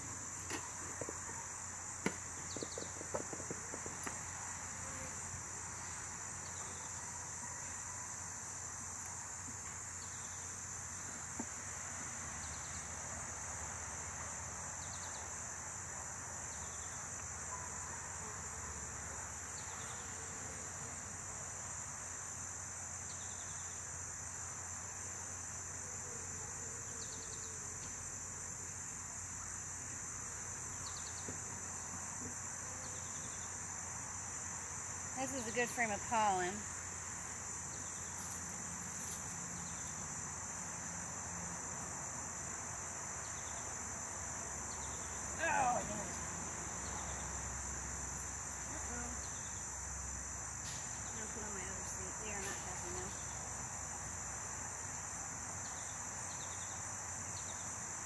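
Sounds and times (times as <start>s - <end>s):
insect chorus: 0.0s - 58.0s
short insect chirps: 43.0s - 58.0s.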